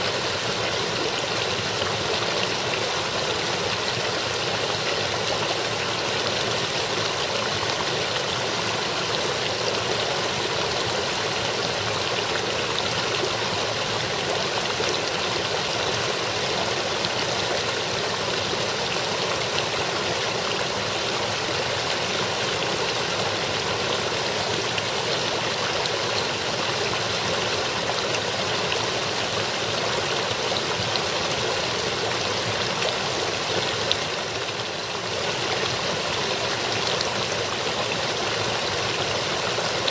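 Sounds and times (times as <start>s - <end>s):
brook babbling over rocks: 0.0s - 39.9s.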